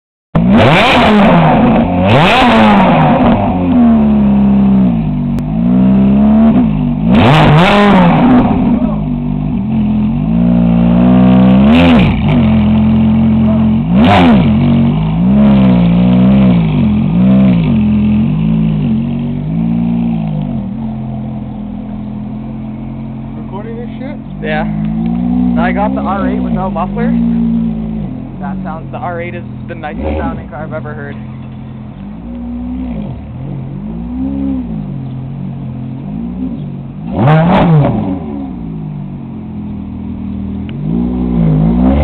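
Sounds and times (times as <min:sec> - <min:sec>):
car engine revving: 0:00.4 - 0:42.0
car pulling away: 0:00.4 - 0:42.0.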